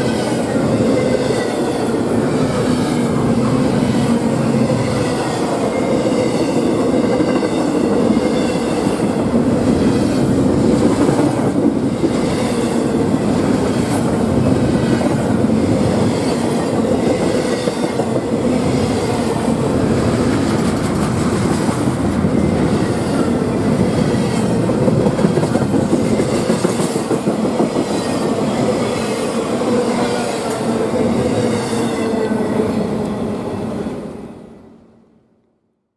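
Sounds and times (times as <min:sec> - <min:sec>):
train wheels rumbling on rail: 0:00.0 - 0:34.3
clickety-clack over rail joints: 0:06.5 - 0:19.4, 0:20.1 - 0:29.2.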